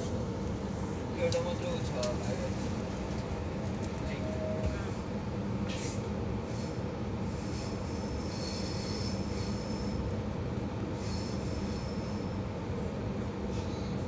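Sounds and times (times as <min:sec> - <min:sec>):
train wheels rumbling on track: 0:00.0 - 0:14.0
high wheel squeal: 0:07.4 - 0:10.0, 0:11.0 - 0:12.4.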